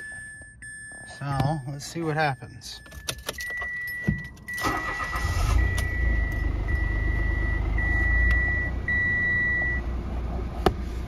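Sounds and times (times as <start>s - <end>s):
dashboard warning chime: 0.0s - 9.9s
car engine idling: 3.9s - 11.0s.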